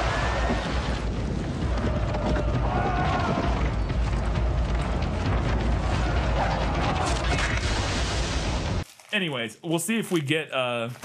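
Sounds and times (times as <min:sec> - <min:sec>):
deep rumble of battle and fire: 0:00.0 - 0:08.8
film trailer music: 0:00.7 - 0:08.8.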